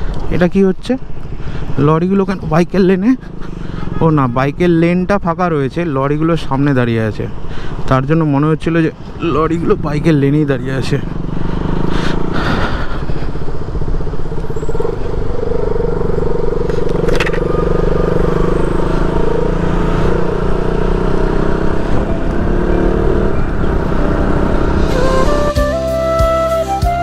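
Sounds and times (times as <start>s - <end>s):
motorcycle engine running: 9.1s - 25.5s.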